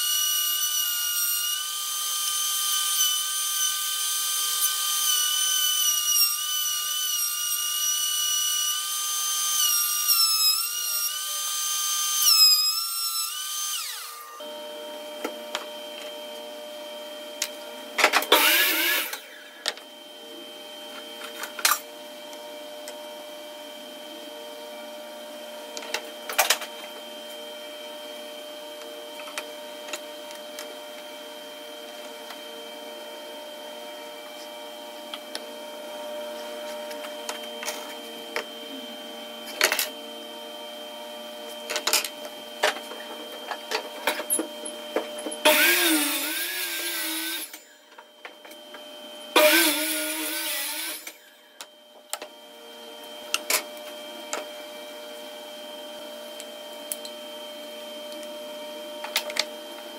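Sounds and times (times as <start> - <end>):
power tool cutting: 0.0 - 14.5, 18.0 - 19.7, 28.3 - 47.8, 49.3 - 51.6
workshop machine humming: 6.5 - 59.9.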